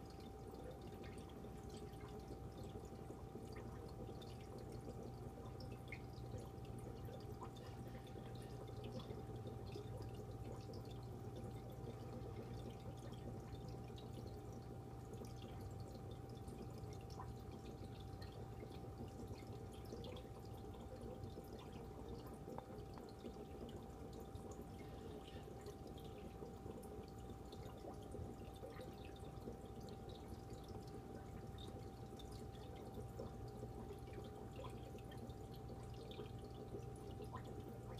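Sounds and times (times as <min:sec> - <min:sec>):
constant hum: 0:00.0 - 0:37.9
water trickling and dripping: 0:00.0 - 0:37.9.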